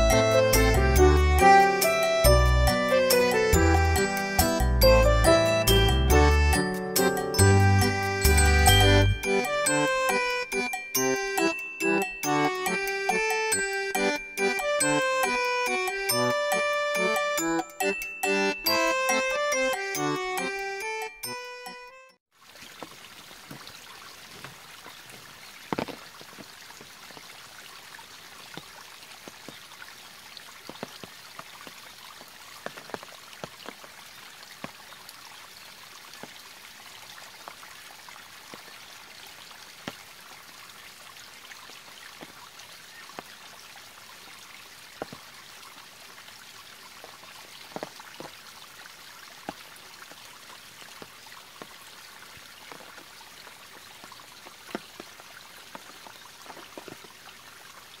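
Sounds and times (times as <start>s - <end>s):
water drops plinking: 2.3s - 21.7s
stream splashing over rocks: 22.3s - 58.0s.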